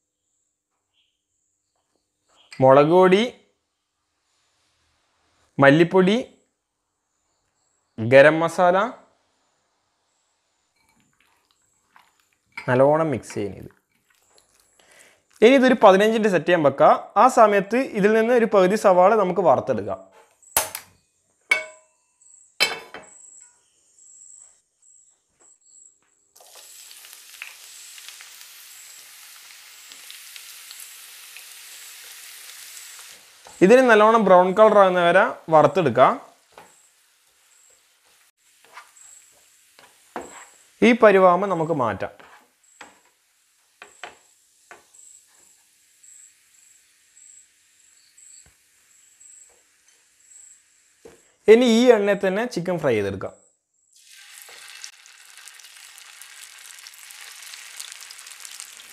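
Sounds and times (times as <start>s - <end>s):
cricket chirping: 7.0s - 8.0s, 21.8s - 26.2s, 44.7s - 51.4s
onions sizzling in hot oil: 26.4s - 51.8s, 54.0s - 58.9s.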